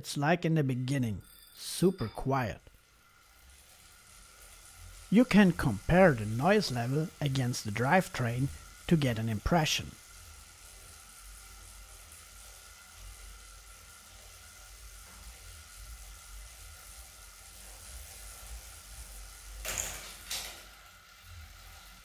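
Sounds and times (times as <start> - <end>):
faint steady whine: 0.0 - 22.0
bike trainer whirring: 0.9 - 22.0.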